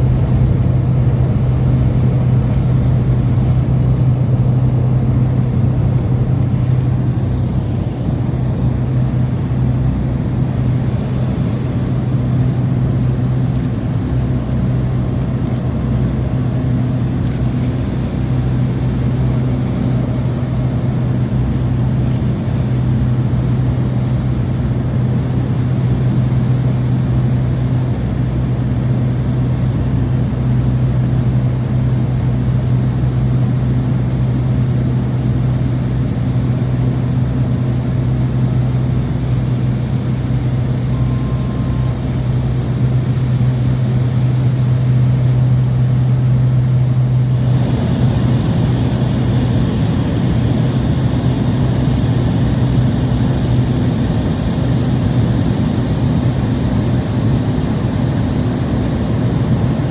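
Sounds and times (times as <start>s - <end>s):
propeller engine drone: 0.0s - 59.9s.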